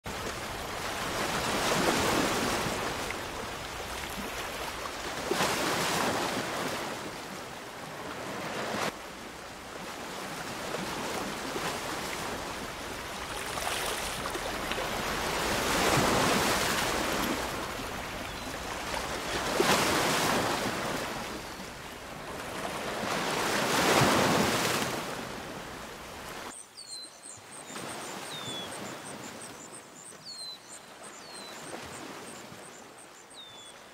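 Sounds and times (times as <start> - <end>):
waves breaking: 0.1 - 26.5
birds chirping: 12.1 - 21.9, 26.6 - 33.9.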